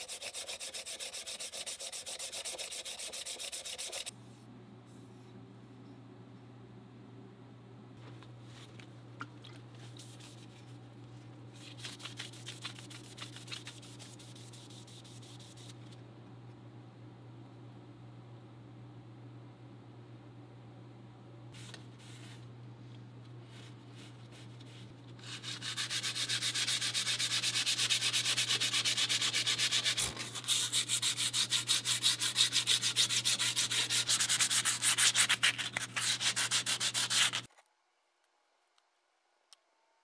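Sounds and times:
sandpaper rubbing on wood: 0.0 - 4.1, 25.2 - 37.5
steady low hum: 0.0 - 37.5.

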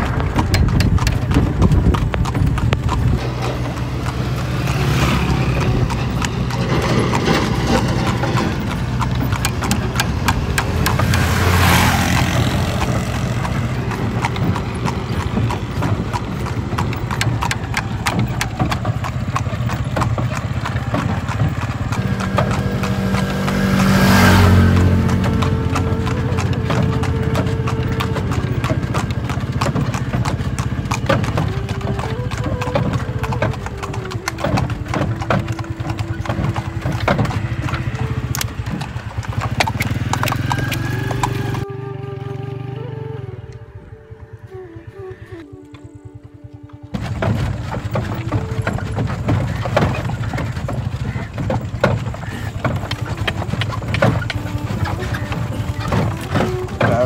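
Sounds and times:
horse hooves trotting on pavement: 0.0 - 41.7, 42.7 - 57.0
loud rushing sound: 22.0 - 25.2.

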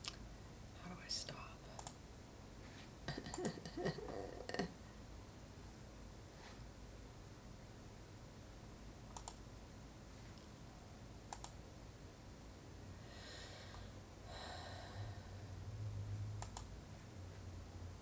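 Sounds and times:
computer mouse clicks: 1.8 - 2.0, 9.1 - 9.4, 11.3 - 11.6, 16.4 - 16.7
soft rustle: 2.6 - 3.0, 6.3 - 6.7.

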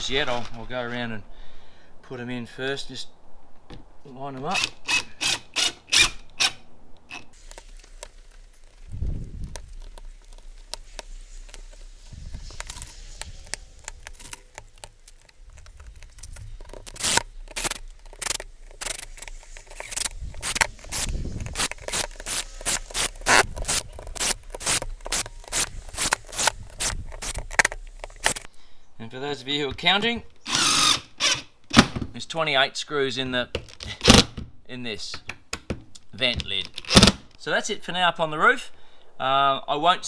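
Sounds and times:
screws clicking and scraping on metal: 4.5 - 28.5, 30.5 - 31.5.

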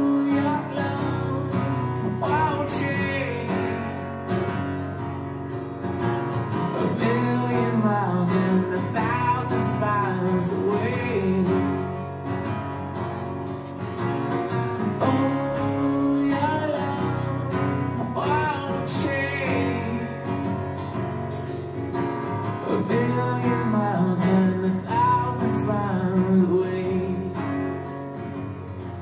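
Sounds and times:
man singing: 0.0 - 4.1, 6.4 - 12.0, 14.8 - 20.9, 22.2 - 28.1
strummed guitar: 0.0 - 29.0.

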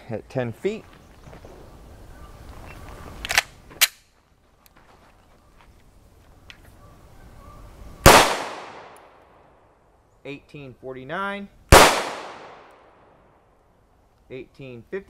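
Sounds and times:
pistol shots: 8.0 - 9.2, 11.7 - 13.1.

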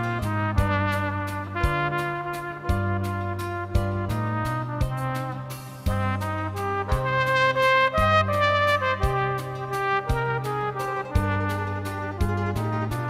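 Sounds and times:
backing track with bass and beat: 0.0 - 13.0
solo trumpet melody: 0.0 - 13.0.

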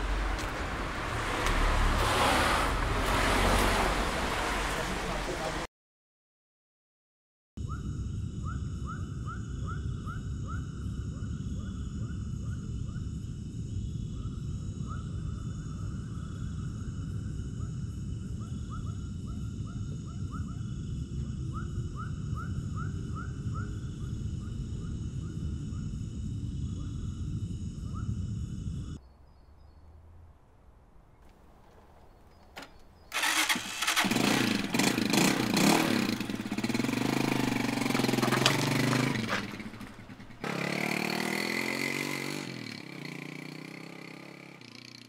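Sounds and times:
insect drone: 7.6 - 29.8, 33.0 - 45.0
steady low rumble: 7.8 - 29.3.

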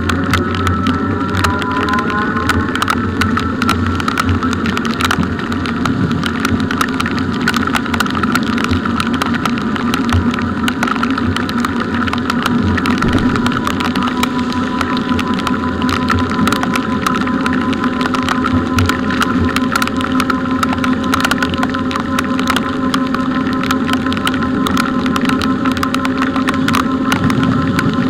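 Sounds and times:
electric motor whine: 0.0 - 4.9, 12.7 - 17.9
raindrops ticking on microphone: 0.0 - 28.0
tyres hissing on wet road: 12.5 - 16.2.

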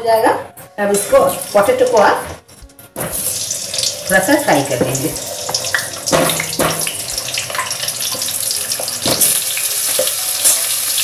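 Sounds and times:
potatoes sizzling in hot oil: 3.1 - 11.0
spatula knocking on pan: 4.7 - 9.4.

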